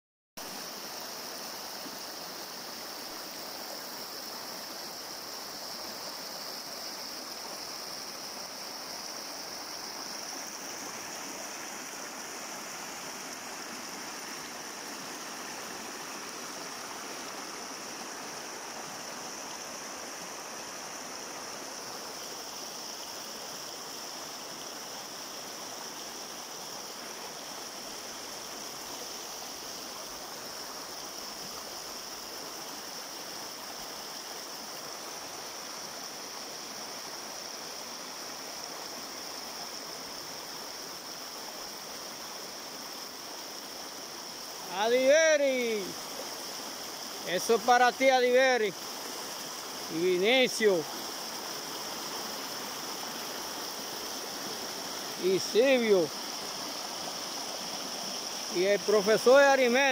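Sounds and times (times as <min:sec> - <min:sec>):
high-pitched hiss: 0:00.4 - 0:59.9
river rushing over rocks: 0:00.4 - 0:59.9.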